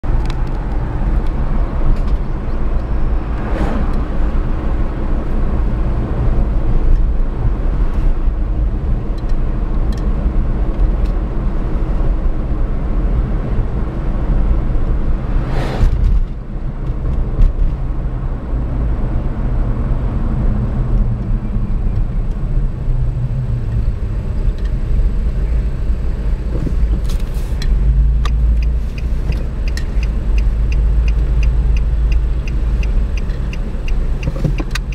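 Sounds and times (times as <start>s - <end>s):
car engine and tyres rumbling: 0.0s - 34.9s
cars swishing past: 2.6s - 4.8s, 15.1s - 16.4s
turn signal ticking: 27.6s - 34.9s.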